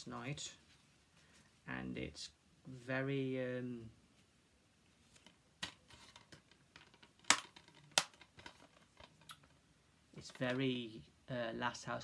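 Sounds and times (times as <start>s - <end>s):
soft rustling: 0.0s - 1.9s, 4.0s - 10.8s.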